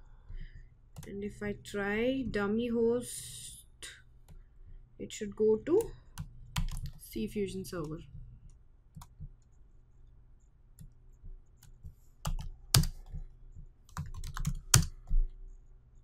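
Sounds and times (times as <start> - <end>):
computer keyboard typing: 5.8 - 7.0, 10.8 - 13.2, 13.8 - 15.2.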